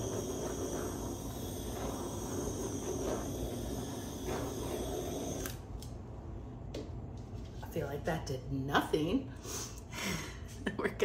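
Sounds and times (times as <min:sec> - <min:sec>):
torch flame hissing: 0:00.0 - 0:05.8.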